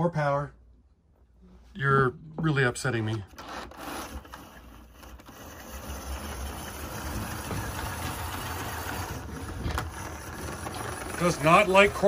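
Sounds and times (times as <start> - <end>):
model train motor whirring: 3.3 - 12.0.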